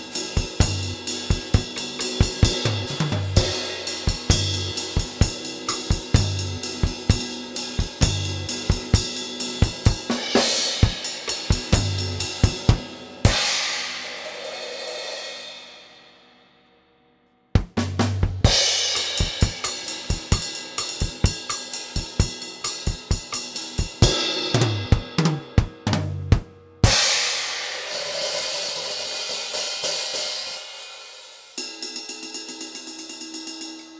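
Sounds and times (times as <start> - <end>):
drum kit groove: 0.0 - 15.3, 17.6 - 33.8
cymbal crash ringing: 26.8 - 31.6.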